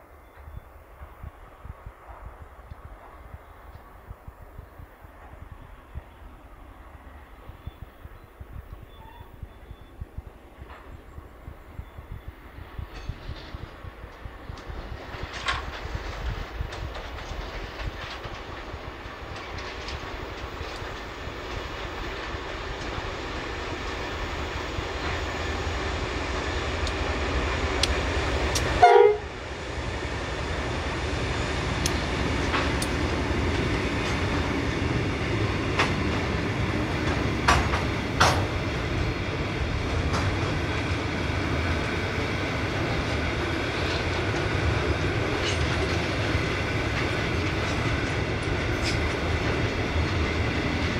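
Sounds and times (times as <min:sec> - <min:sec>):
diesel locomotive engine rumble: 0:00.0 - 0:50.9
train wheels roaring on rails: 0:00.0 - 0:50.9
train horn blare: 0:28.8 - 0:29.4.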